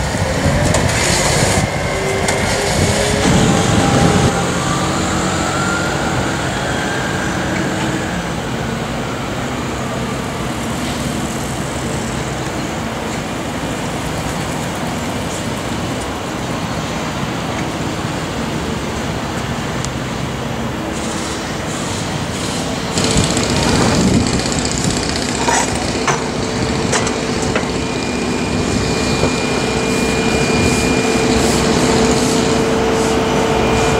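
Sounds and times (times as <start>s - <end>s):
traffic and construction rumble: 0.0s - 33.9s
faint rising whine: 23.0s - 33.9s.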